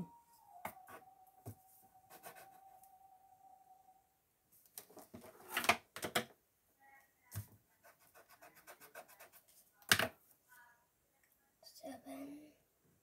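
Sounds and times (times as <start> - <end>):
pencil scratching on paper: 2.1 - 2.6, 7.8 - 9.6.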